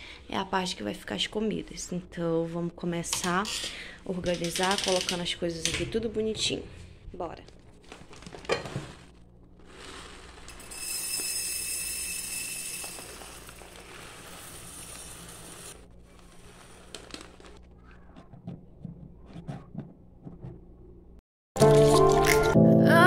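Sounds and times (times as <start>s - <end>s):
rice grains pouring into jar: 9.6s - 17.5s.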